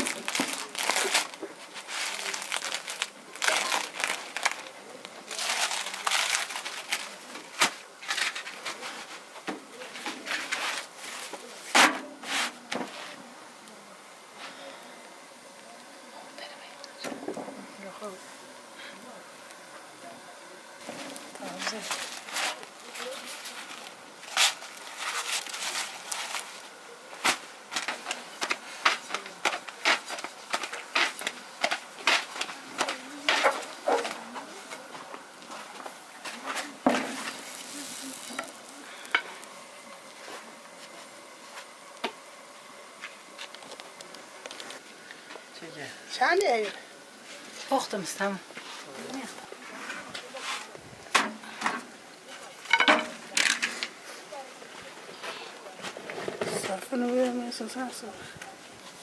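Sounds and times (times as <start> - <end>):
flatbread sheets rustling and crackling: 0.0 - 14.8, 20.6 - 50.8
dough swishing: 10.2 - 13.2.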